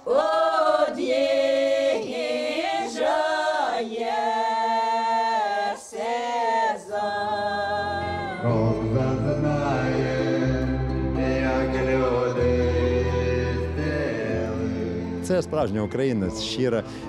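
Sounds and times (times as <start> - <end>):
women singing a cappella: 0.0 - 14.7.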